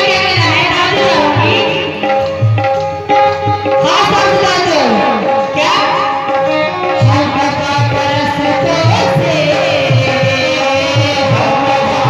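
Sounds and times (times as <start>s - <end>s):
person singing: 3.8s - 12.0s.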